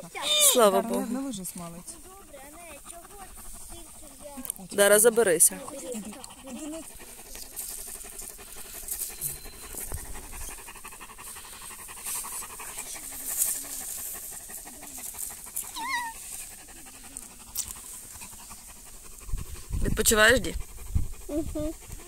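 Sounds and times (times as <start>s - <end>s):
large dog panting: 0.0s - 22.0s.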